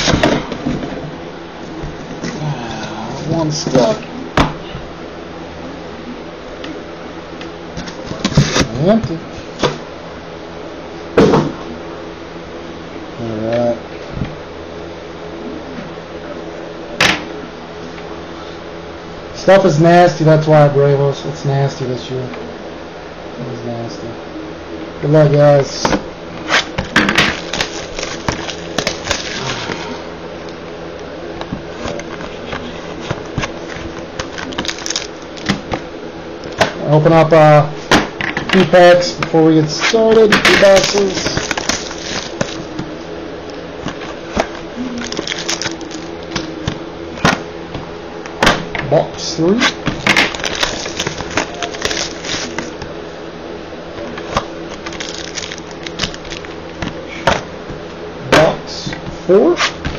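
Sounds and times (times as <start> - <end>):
steady background hum: 0.0 - 59.9
card pack handling noise: 7.8 - 9.7, 26.4 - 30.0, 31.4 - 35.9, 38.5 - 43.0, 43.8 - 47.4, 49.6 - 52.9, 54.0 - 57.4
cardboard box rustling: 31.5 - 35.6.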